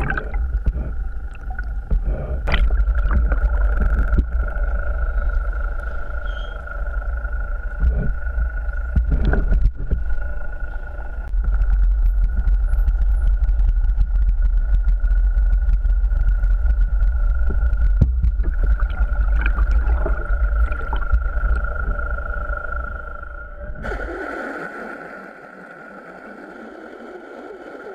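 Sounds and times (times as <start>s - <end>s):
hissing water noise: 0.0s - 5.8s, 17.5s - 27.9s
constant high whine: 0.0s - 27.9s
low engine rumble underwater: 0.0s - 27.9s
dolphin whistles: 5.9s - 6.7s.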